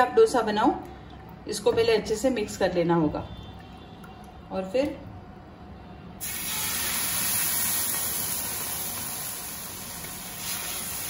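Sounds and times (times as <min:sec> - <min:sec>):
batter sizzling on griddle: 0:06.2 - 0:11.0.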